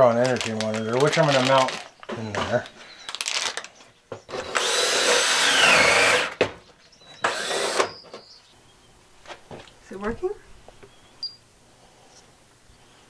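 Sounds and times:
plastic packet crinkling: 0.0s - 3.9s
cordless drill driving screws: 4.3s - 6.5s, 7.2s - 8.0s.

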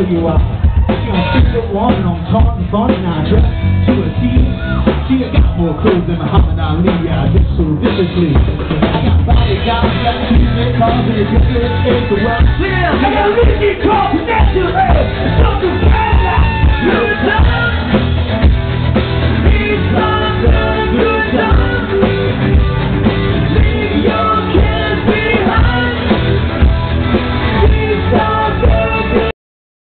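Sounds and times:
drum kit beat: 0.0s - 29.3s
electric guitar: 0.0s - 29.3s
person singing into a microphone: 9.3s - 18.0s, 19.3s - 22.5s, 23.5s - 26.7s, 27.4s - 29.3s.

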